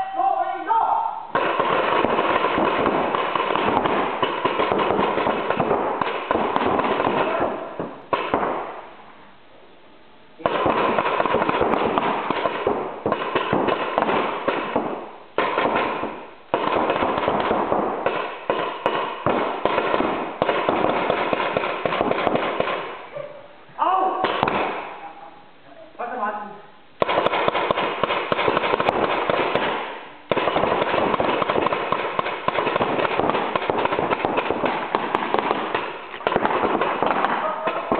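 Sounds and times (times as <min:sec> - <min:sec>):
paintball markers firing rapid pops: 0:01.4 - 0:07.4, 0:10.5 - 0:22.9, 0:27.0 - 0:37.9.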